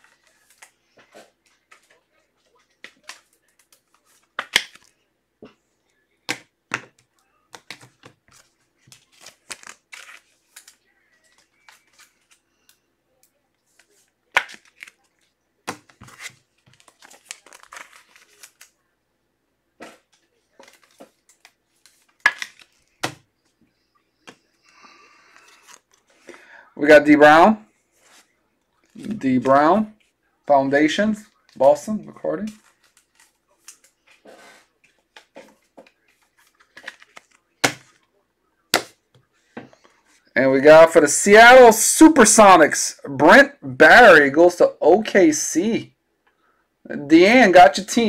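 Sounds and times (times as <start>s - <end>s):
wrapper crinkling and tearing: 16.0s - 18.8s.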